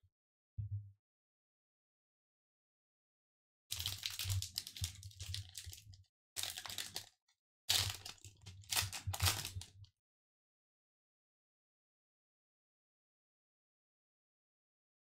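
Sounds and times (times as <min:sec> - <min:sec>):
foil wrapper crinkling and tearing: 0:03.7 - 0:09.7.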